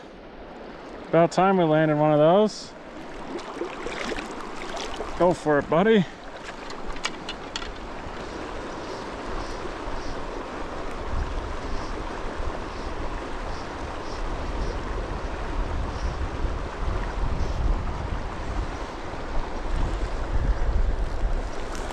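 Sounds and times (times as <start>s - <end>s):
river flowing over rocks: 2.7s - 14.0s
wind rumbling on microphone: 2.8s - 21.9s.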